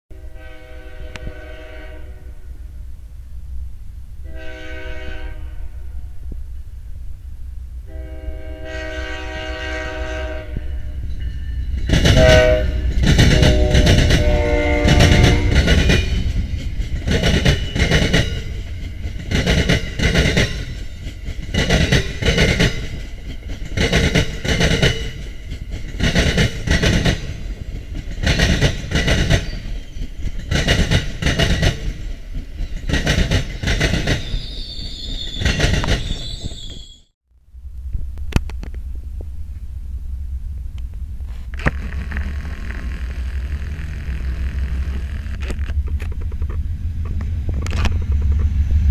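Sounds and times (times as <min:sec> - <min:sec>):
train horn blasts: 0:00.1 - 0:02.7, 0:04.2 - 0:06.2, 0:07.8 - 0:11.2, 0:12.0 - 0:16.2
train rumble: 0:00.1 - 0:48.9
train wheels clickety-clack: 0:09.5 - 0:36.9, 0:45.0 - 0:48.9.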